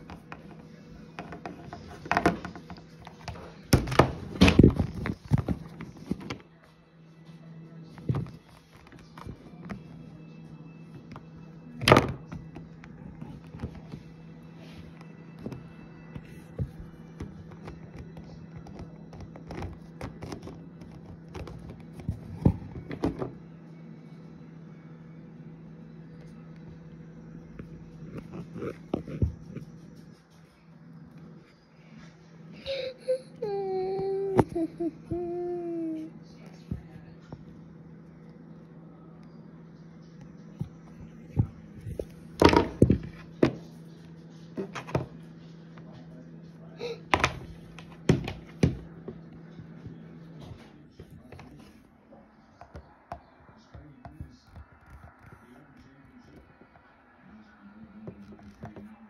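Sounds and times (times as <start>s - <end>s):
steady low hum: 0.0s - 59.0s
plastic toys knocking on wooden table: 42.4s - 43.6s.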